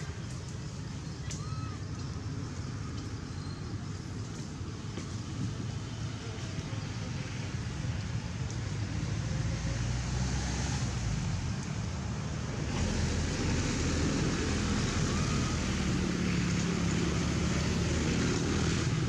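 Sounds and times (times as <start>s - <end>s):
outdoor rushing noise: 4.3s - 19.0s.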